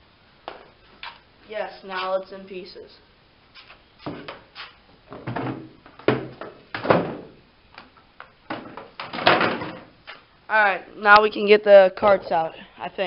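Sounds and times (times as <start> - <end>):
plastic panels knocking and clattering: 5.1 - 7.3, 8.5 - 9.9.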